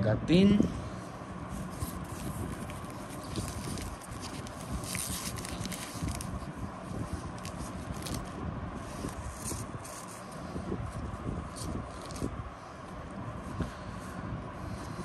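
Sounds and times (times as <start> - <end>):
cards scraping together: 1.6 - 6.5, 7.1 - 10.6, 11.4 - 12.3
wrapper crinkling: 1.6 - 10.2
wrapper ripping: 1.9 - 6.5.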